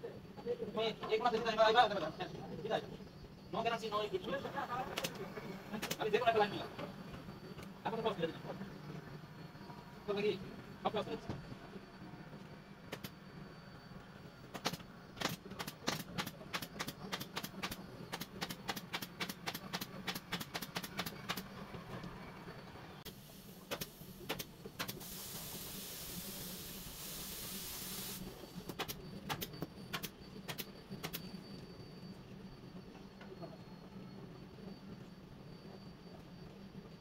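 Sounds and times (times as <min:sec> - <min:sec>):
staple gun firing: 0:14.6 - 0:21.4
air hissing: 0:23.1 - 0:31.2.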